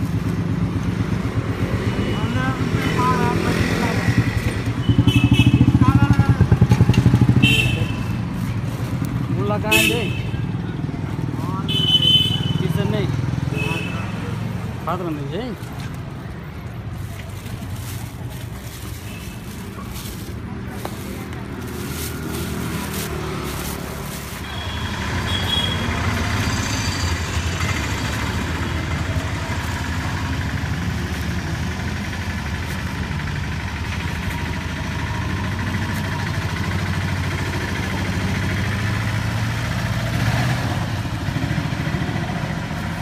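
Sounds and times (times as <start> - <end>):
vehicle engine idling: 15.9 - 43.0.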